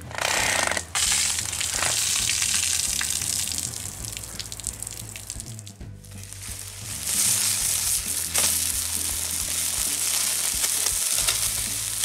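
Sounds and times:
patties sizzling on foil: 0:06.1 - 0:12.0
metal spatula scraping foil: 0:07.1 - 0:08.7, 0:09.6 - 0:11.6.

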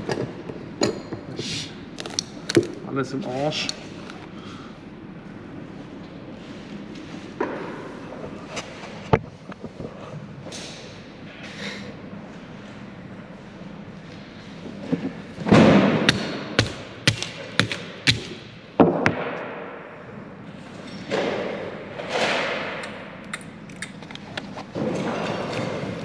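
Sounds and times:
hammer striking phones on wood: 0:16.1 - 0:18.3.

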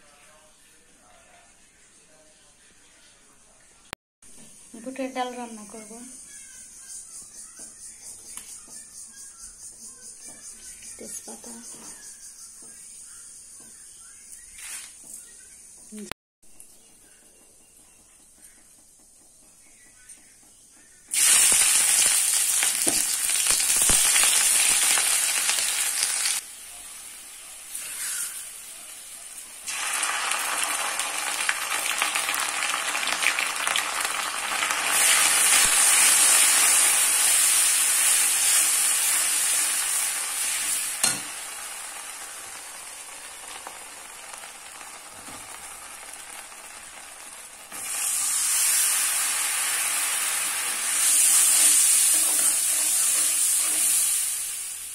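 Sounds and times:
onions sizzling in hot oil: 0:21.1 - 0:54.9
spatula stirring in metal pan: 0:51.0 - 0:54.2.

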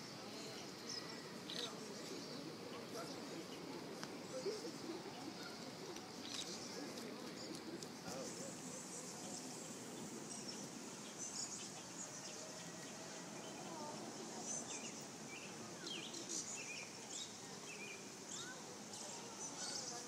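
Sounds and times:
faint low murmur: 0:00.0 - 0:20.0
small birds chirping: 0:00.0 - 0:20.0.

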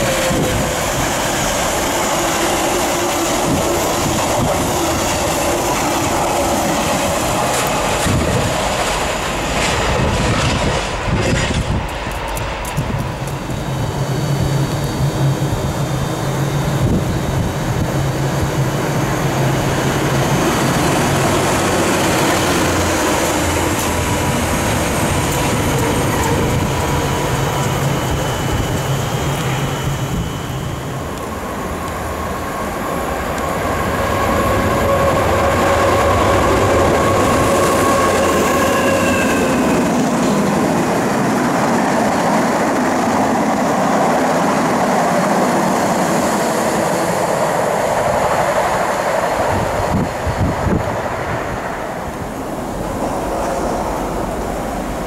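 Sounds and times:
freight train rumbling past: 0:00.0 - 0:55.0
train humming at platform: 0:00.0 - 0:55.0
high squealing: 0:21.9 - 0:41.2.

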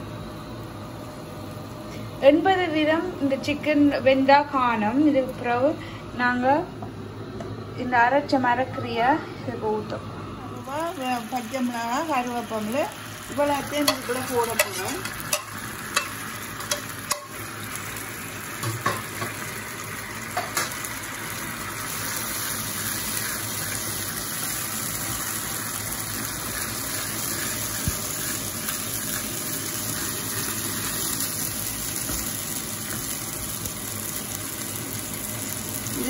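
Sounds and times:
paste sizzling in frying pan: 0:10.6 - 0:36.0.

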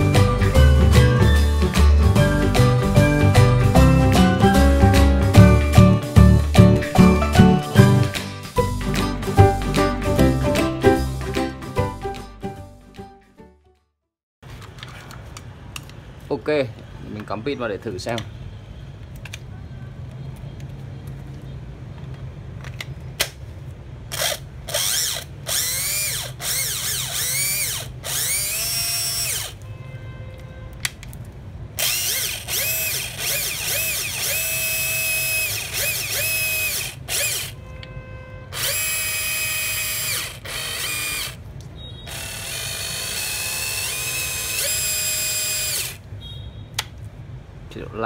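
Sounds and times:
cordless drill whining: 0:24.1 - 0:29.6, 0:31.8 - 0:37.6, 0:38.5 - 0:41.4, 0:42.1 - 0:46.0.

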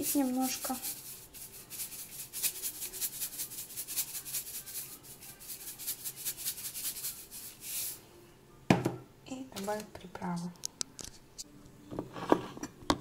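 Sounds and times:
salt container shaking: 0:00.0 - 0:08.0.

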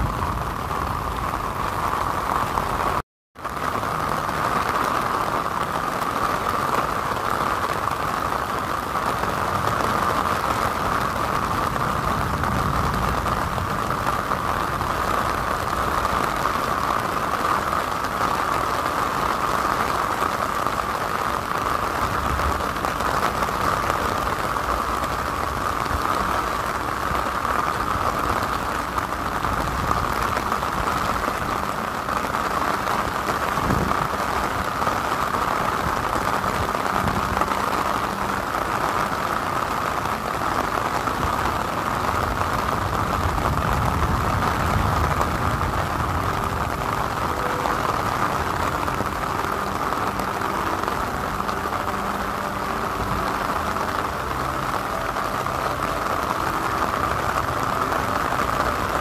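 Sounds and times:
rain on umbrella: 0:00.0 - 0:59.0
traffic on wet road: 0:00.0 - 0:59.0.

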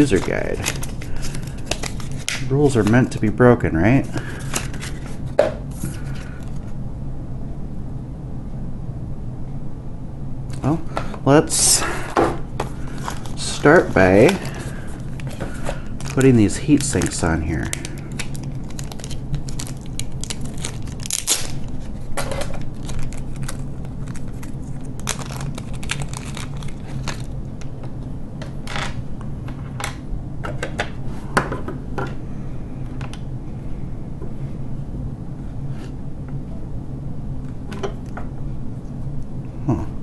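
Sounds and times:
plastic packet crinkling and tearing: 0:00.0 - 0:02.9, 0:12.7 - 0:27.8
steady low hum: 0:00.0 - 0:40.0.

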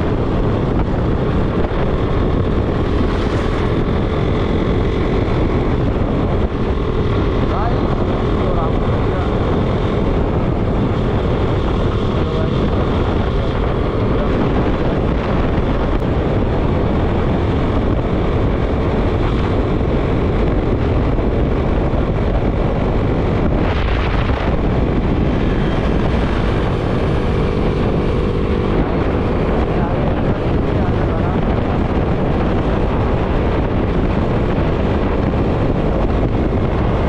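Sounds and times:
motorcycle engine droning: 0:00.0 - 0:37.0
wind buffeting microphone: 0:00.0 - 0:37.0.

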